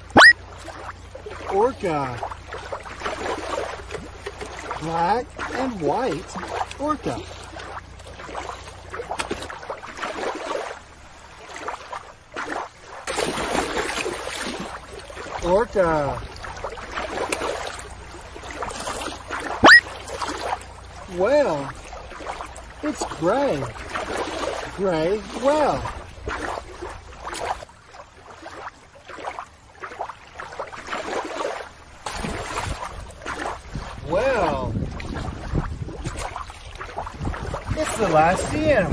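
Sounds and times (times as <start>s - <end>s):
water splashing and lapping: 0.0s - 38.9s.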